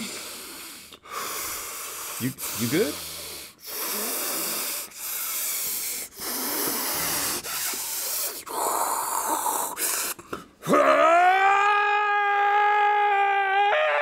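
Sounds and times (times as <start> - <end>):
man making breathy hissing sounds: 0.0 - 10.6.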